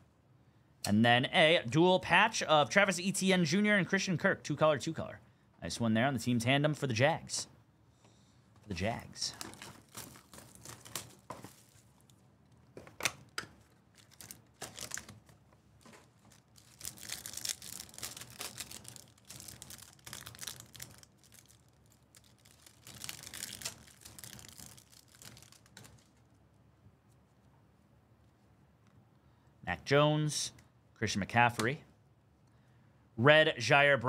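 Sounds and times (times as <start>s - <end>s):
wrappers crinkling: 9.0s - 26.4s
card packs tearing open: 9.1s - 12.1s, 12.8s - 26.2s.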